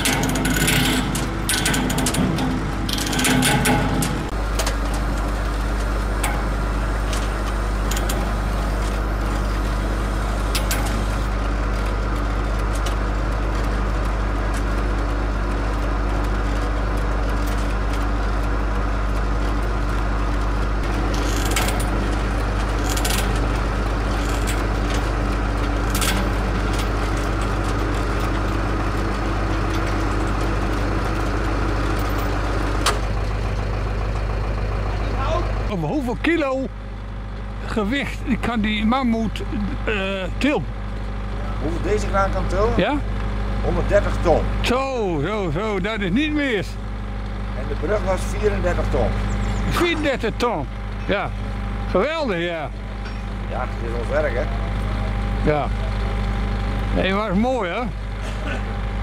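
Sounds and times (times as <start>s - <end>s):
sharp metallic clicks and knocks: 0.0s - 9.4s, 19.1s - 33.7s
crane diesel engine running: 0.0s - 59.0s.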